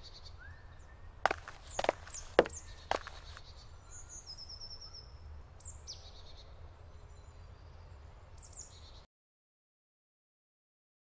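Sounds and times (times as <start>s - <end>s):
birds chirping: 0.9s - 5.0s.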